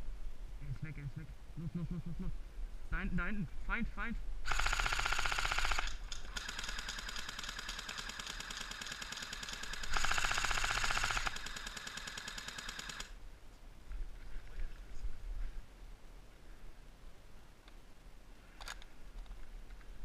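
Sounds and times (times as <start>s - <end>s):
airsoft guns firing full auto: 4.5s - 13.2s.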